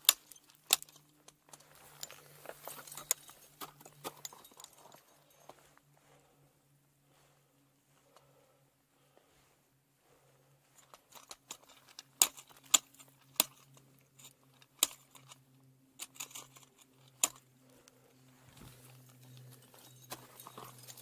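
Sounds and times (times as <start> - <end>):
small metallic clinks: 0.0 - 5.6, 16.0 - 21.0.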